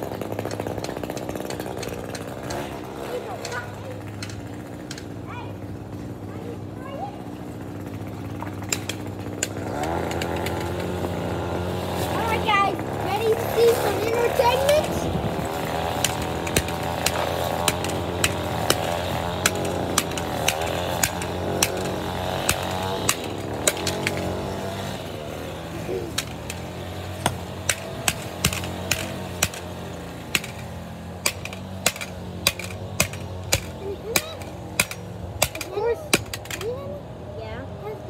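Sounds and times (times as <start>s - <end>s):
low motor hum: 0.0s - 38.0s
hammer striking camera: 26.1s - 36.6s.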